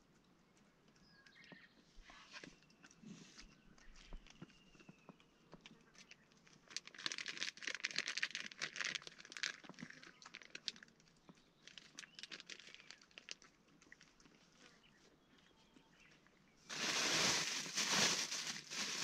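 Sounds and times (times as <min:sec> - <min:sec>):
plastic packet crinkling: 0:06.4 - 0:14.3, 0:16.7 - 0:19.0.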